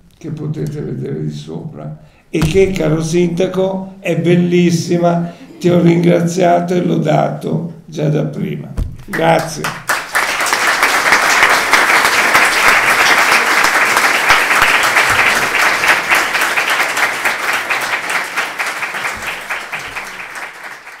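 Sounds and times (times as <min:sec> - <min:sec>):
audience applauding: 0:09.1 - 0:21.0.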